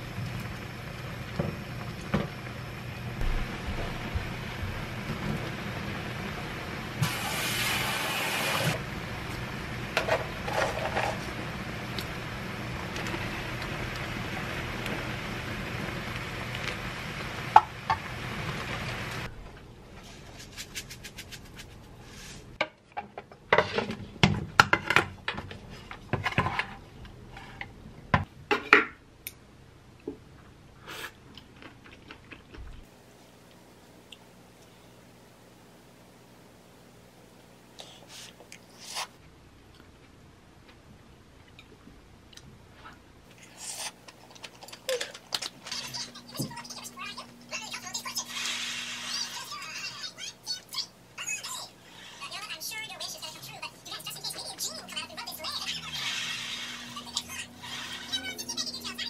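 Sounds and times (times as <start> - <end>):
sauce simmering and sizzling: 0.0 - 19.3
steady hum: 0.0 - 20.0, 32.9 - 59.0.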